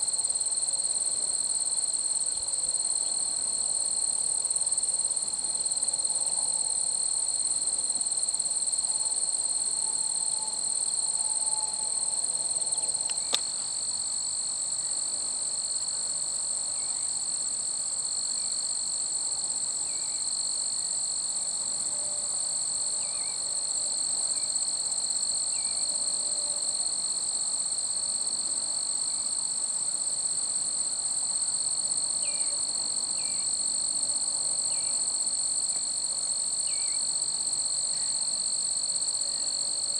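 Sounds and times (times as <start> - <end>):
insects trilling: 34.6 - 39.9.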